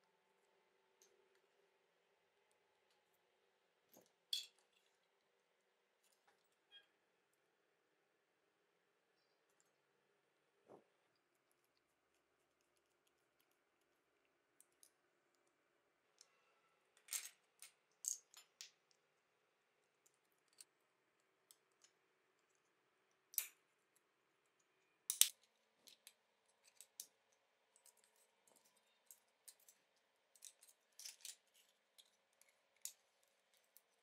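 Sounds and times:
toy parts clicking and snapping: 0:25.1 - 0:27.2, 0:27.8 - 0:34.0.

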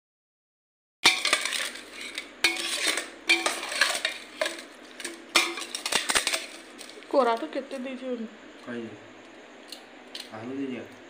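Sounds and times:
spoon scraping metal pot: 0:01.0 - 0:07.0.

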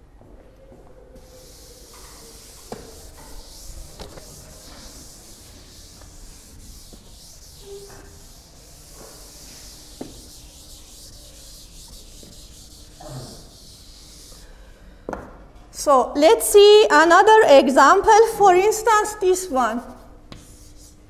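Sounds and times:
eraser rubbing chalkboard: 0:01.2 - 0:14.5, 0:20.0 - 0:21.0.

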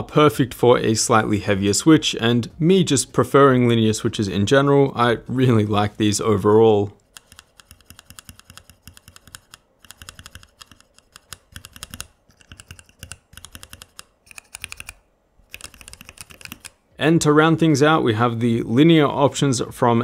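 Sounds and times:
typing on keyboard keys: 0:07.2 - 0:16.8.

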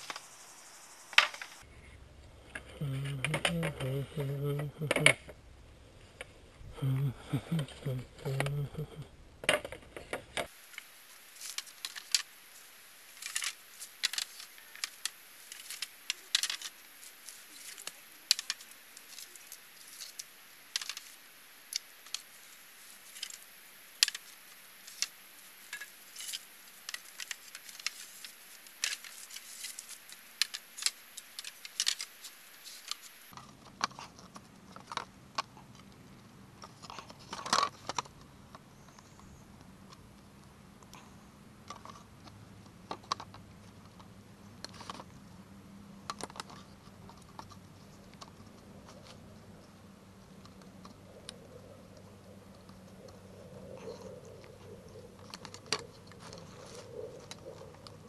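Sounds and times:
bamboo poles knocking together: 0:13.2 - 0:16.8, 0:24.9 - 0:35.0.

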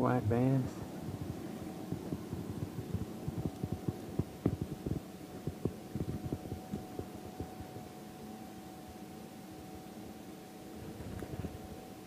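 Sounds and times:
faint steady hum: 0:00.0 - 0:12.0
dull low knocks and thumps: 0:01.0 - 0:07.6.

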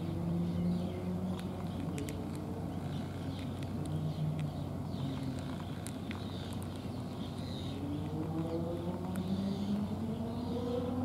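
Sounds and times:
cat chewing dry food: 0:01.3 - 0:09.3.

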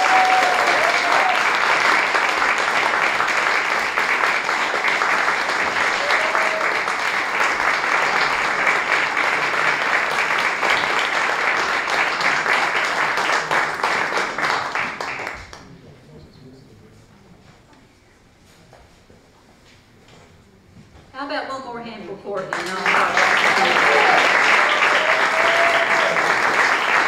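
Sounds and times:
audience applauding: 0:00.0 - 0:15.8, 0:22.5 - 0:27.0.

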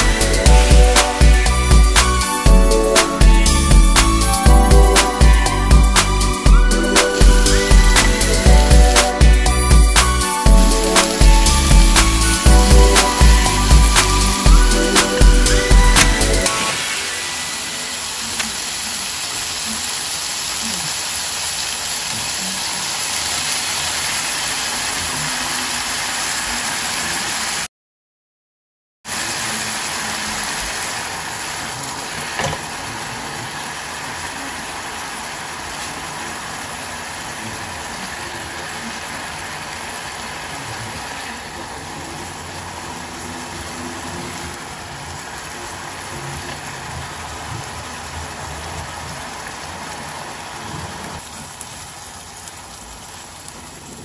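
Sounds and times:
sauce sizzling in a frying pan: 0:00.0 - 0:27.7, 0:29.1 - 0:54.0.

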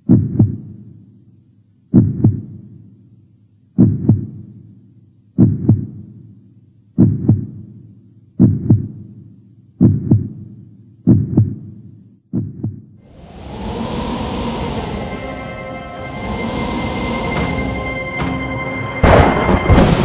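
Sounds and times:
heartbeat thumps: 0:00.0 - 0:00.7, 0:01.9 - 0:02.6, 0:03.8 - 0:04.4, 0:05.4 - 0:06.0, 0:07.0 - 0:07.7, 0:08.4 - 0:09.1, 0:09.8 - 0:10.5, 0:11.1 - 0:13.0
rush of noise: 0:13.0 - 0:20.0.

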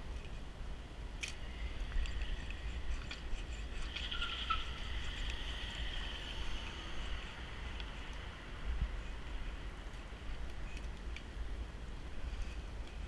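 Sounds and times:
faint steady hiss: 0:00.0 - 0:13.0
light ticks: 0:01.2 - 0:06.8, 0:07.7 - 0:08.3
squeaks on glass: 0:04.0 - 0:04.9.

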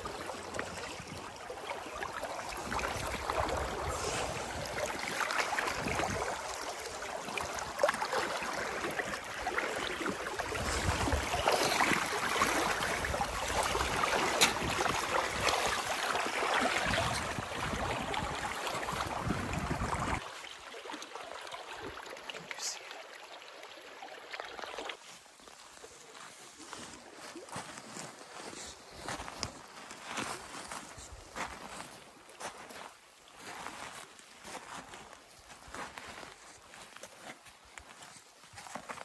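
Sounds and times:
boots splashing through water: 0:00.0 - 0:21.3, 0:24.5 - 0:39.0
footsteps crunching on gravel: 0:25.6 - 0:39.0.

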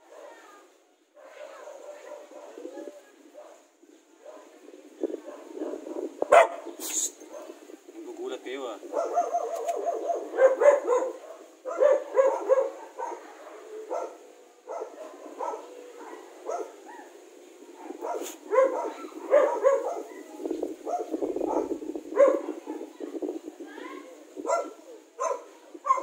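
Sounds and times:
dog barking: 0:01.2 - 0:04.6, 0:05.2 - 0:07.6, 0:08.9 - 0:17.2, 0:17.8 - 0:22.8, 0:24.4 - 0:26.0.

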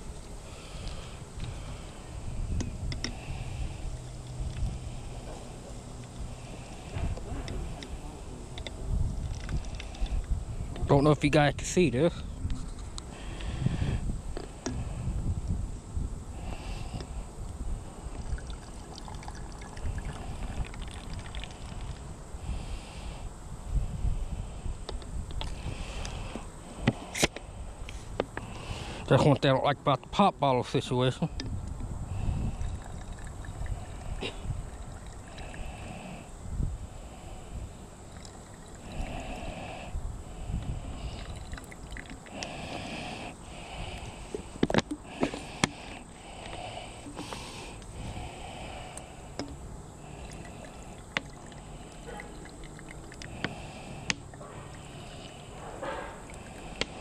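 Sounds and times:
water trickling into bottle: 0:09.1 - 0:10.3, 0:18.0 - 0:22.1, 0:32.1 - 0:36.0, 0:38.0 - 0:39.6, 0:40.9 - 0:44.2, 0:49.3 - 0:55.4, 0:56.2 - 0:57.0
small drips and splashes: 0:18.1 - 0:22.1, 0:32.5 - 0:35.6, 0:38.0 - 0:38.9, 0:41.0 - 0:42.5, 0:49.4 - 0:54.9
plastic bottle squeezing hiss: 0:42.2 - 0:49.5.

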